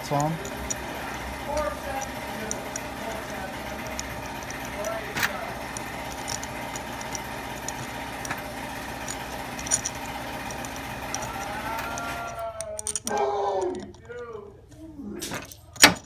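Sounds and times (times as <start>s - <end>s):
mechanical hum: 0.0s - 16.0s
light metal clicks: 1.6s - 14.4s.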